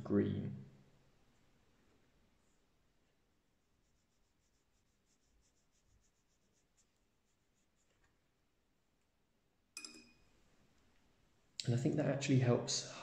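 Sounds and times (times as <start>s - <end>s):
brush stroking paper: 3.4s - 8.3s
sharp click with ring: 9.8s - 10.2s.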